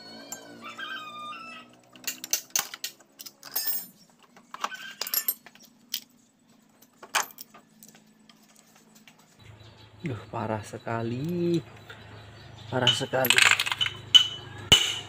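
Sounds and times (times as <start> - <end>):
metal engine parts clinking: 1.7 - 9.0, 12.7 - 15.0.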